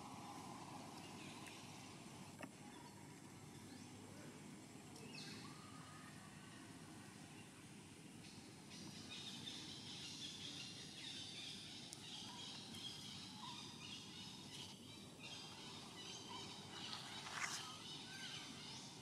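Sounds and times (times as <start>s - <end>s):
soft outdoor background hiss: 0.0s - 19.0s
distant bird chirps: 8.2s - 19.0s.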